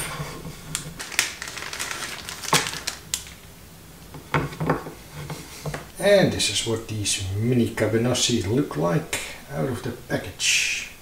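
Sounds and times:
plastic packet crinkling: 0:00.7 - 0:03.5.

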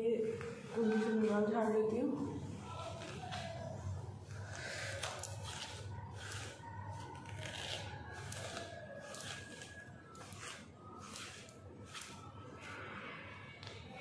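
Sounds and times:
comb swishing through hair: 0:04.4 - 0:12.9.

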